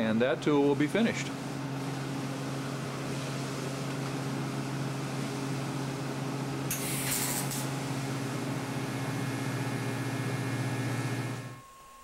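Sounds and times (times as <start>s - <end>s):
welder humming: 4.3s - 12.0s
high-pitched arc hiss: 6.7s - 7.7s.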